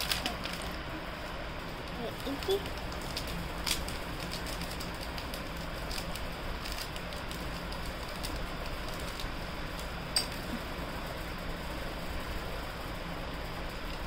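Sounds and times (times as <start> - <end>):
jewellery and packing crinkling: 0.0 - 0.8, 2.1 - 9.4.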